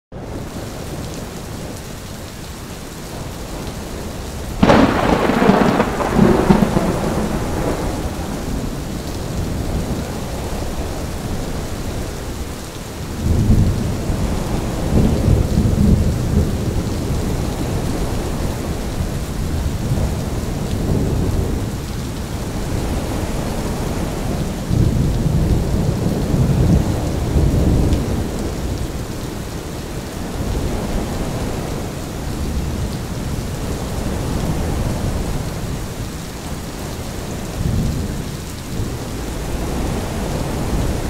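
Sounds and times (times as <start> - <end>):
gusting wind: 0.1 - 41.0
steady rain: 0.1 - 41.0
deep roll of thunder: 4.4 - 12.1, 13.2 - 21.8
sharp thunderclap: 4.6 - 10.0.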